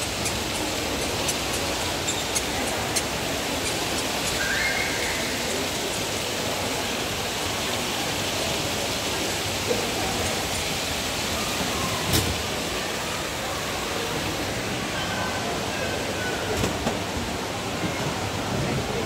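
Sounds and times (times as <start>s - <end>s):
faint voices of shoppers: 0.0s - 19.0s
shopping hall hiss: 0.0s - 19.0s.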